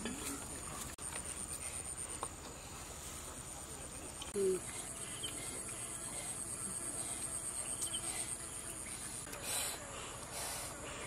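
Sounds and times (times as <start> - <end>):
high-pitched insect chorus: 3.4 - 11.0.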